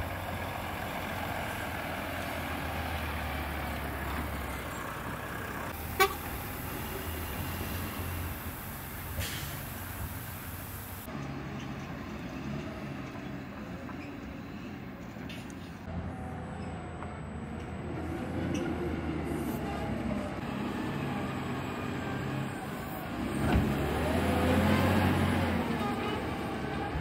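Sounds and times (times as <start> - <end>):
diesel engine running: 0.0 - 13.8.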